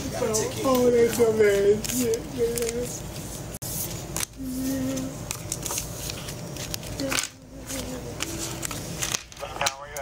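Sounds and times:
muffled voices: 0:00.0 - 0:03.0, 0:07.0 - 0:10.0
rustling and handling noise: 0:00.0 - 0:10.0.

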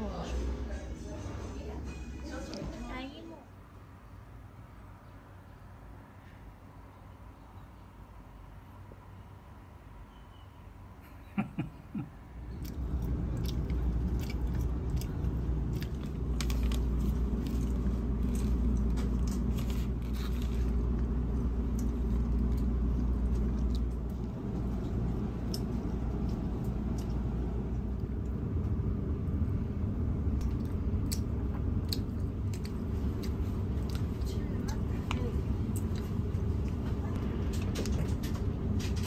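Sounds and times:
train carriage rumble: 0:21.1 - 0:39.0.

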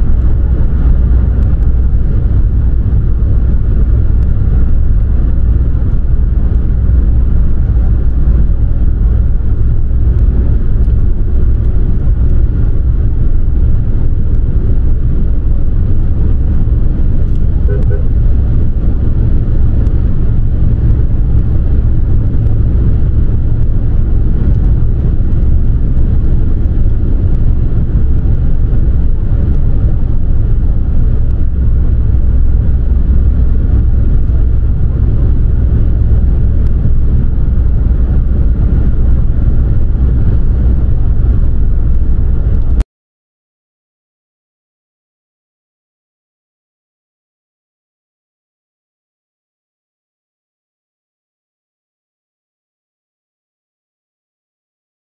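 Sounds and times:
car road and engine rumble: 0:00.0 - 0:42.8.

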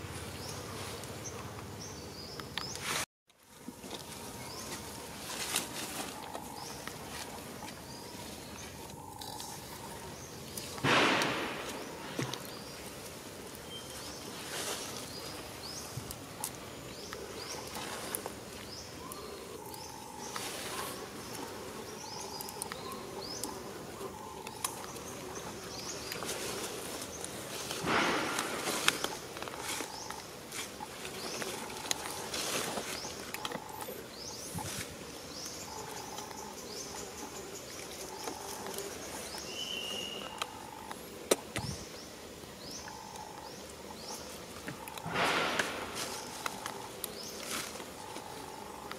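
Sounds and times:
birds chirping: 0:00.0 - 0:03.0, 0:03.8 - 0:48.9
loud noisy burst: 0:10.8 - 0:12.0, 0:27.8 - 0:28.8.

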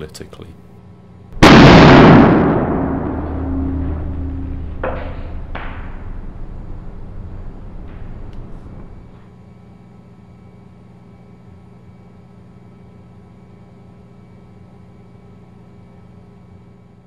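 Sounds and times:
low drone with held tones: 0:02.6 - 0:09.2.

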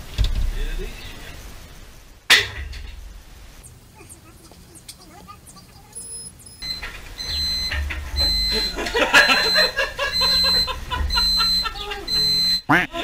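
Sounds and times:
warning buzzer beeping: 0:06.0 - 0:13.0.

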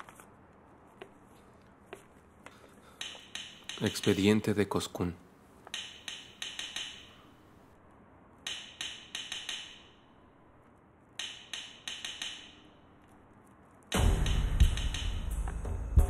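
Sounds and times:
music with deep low pulse: 0:14.0 - 0:16.0.

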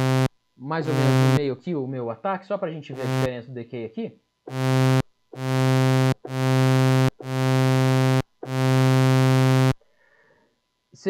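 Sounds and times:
synthesizer low buzzy note: 0:00.0 - 0:01.5, 0:02.9 - 0:03.3, 0:04.5 - 0:09.8.

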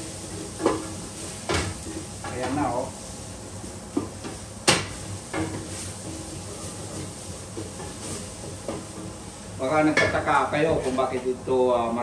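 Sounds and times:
faint sizzle of frying: 0:00.0 - 0:12.0
wooden spoon stirring in pot: 0:05.2 - 0:11.1.

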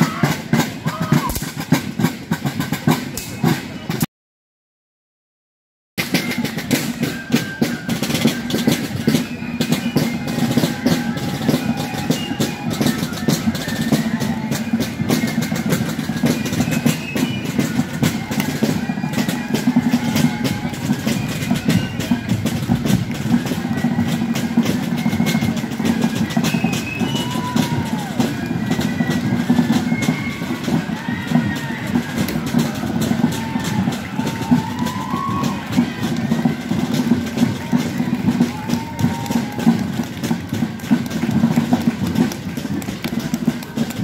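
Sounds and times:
rattling field drums: 0:00.0 - 0:04.0, 0:06.0 - 0:44.0.

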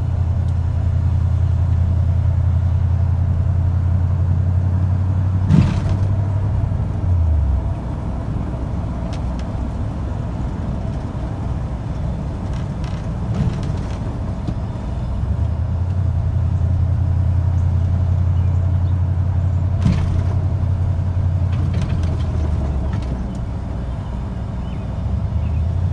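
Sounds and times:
car cabin engine and road drone: 0:00.0 - 0:25.9.

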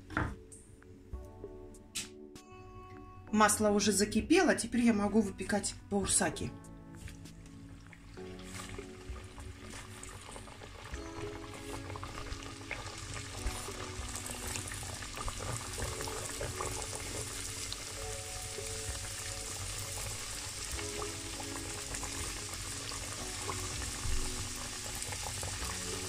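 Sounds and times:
background music: 0:00.0 - 0:26.0
dough deep-frying in oil: 0:07.8 - 0:26.0.

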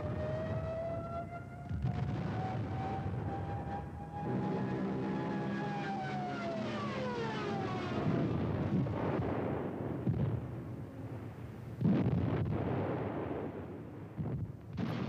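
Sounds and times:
explosions: 0:01.7 - 0:03.3, 0:08.1 - 0:10.7, 0:11.8 - 0:15.0
aircraft engine droning past: 0:03.1 - 0:08.3.

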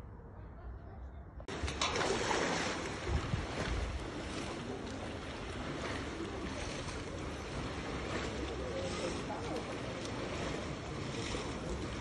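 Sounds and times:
wind buffeting microphone: 0:01.4 - 0:12.0
water rushing: 0:01.5 - 0:12.0.

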